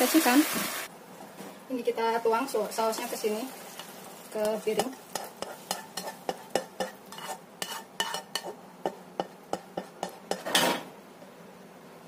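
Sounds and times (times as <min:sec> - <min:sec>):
utensil scraping a pan: 0:02.9 - 0:10.8
utensil tapping on a pan: 0:04.4 - 0:10.5.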